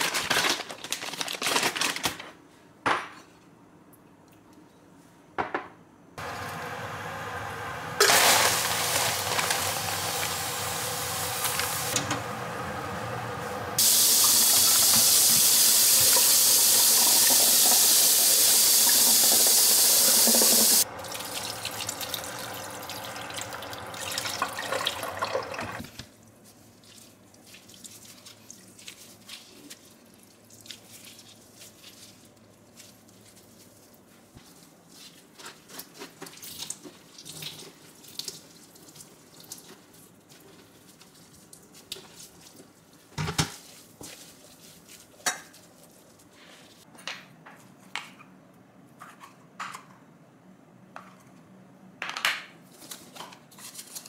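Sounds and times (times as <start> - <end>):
tap water running into sink: 8.0 - 12.1, 13.8 - 25.9.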